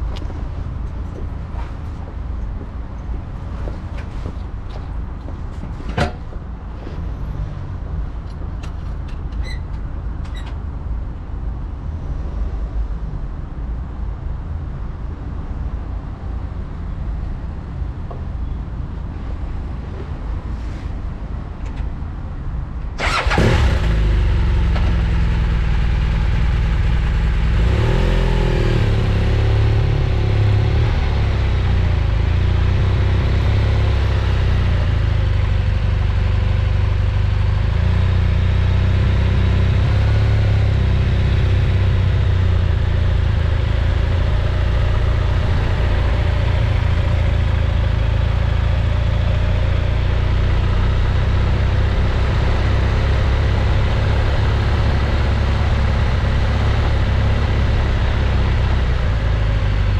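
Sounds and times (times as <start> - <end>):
motorcycle engine starting and idling: 23.0 - 39.8.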